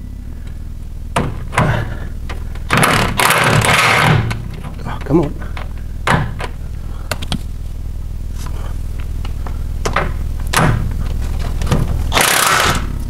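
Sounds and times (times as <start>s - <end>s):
steady low hum: 0.0s - 13.0s
sharp metal knocks and clicks: 1.2s - 7.4s, 9.8s - 10.9s.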